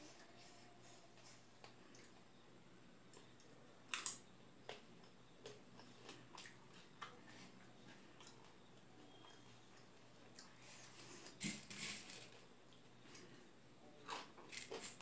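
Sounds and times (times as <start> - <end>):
chewing crunches: 14.0 - 15.0.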